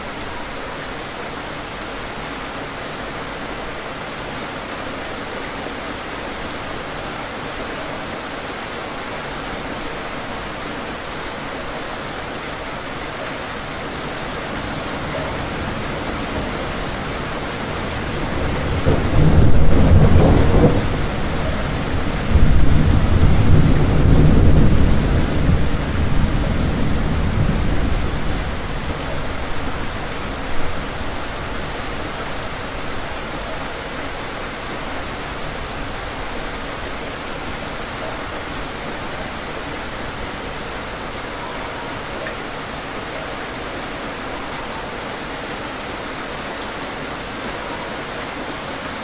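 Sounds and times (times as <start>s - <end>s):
heavy rain: 0.0s - 49.0s
rolling thunder: 18.2s - 29.9s.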